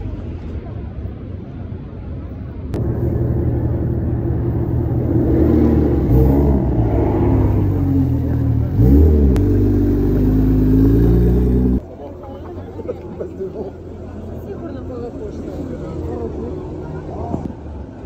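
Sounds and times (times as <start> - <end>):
sports car engine revving: 2.8 - 11.8.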